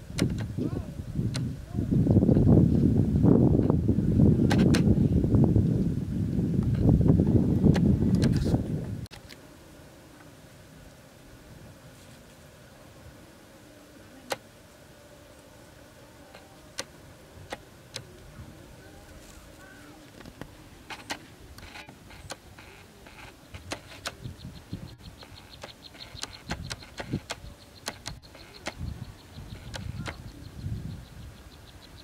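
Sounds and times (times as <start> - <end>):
faint insect buzz: 0.0 - 32.0
sharp clicks and rustles: 19.1 - 30.3
fast high ticks: 20.9 - 30.4.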